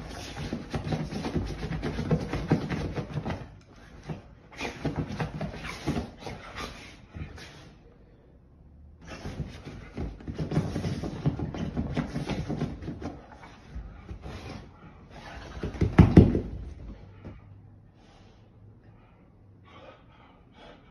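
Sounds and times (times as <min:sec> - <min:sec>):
dog paws scrabbling on cushions: 0:09.0 - 0:17.1.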